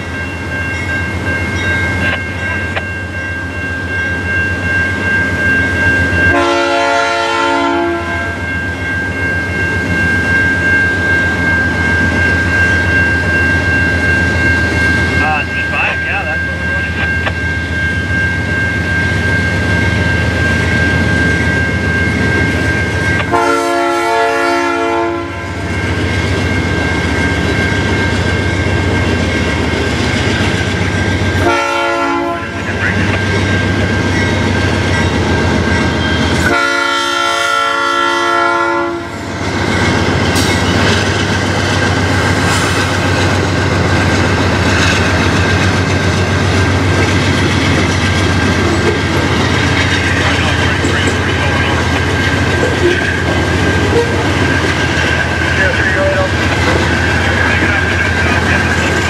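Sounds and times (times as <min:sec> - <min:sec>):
crossing bell ringing: 0:00.0 - 0:59.0
locomotive air horn blasts: 0:06.3 - 0:08.4, 0:23.3 - 0:25.5, 0:31.4 - 0:32.6, 0:36.4 - 0:39.2
train wheels clattering: 0:39.6 - 0:57.7.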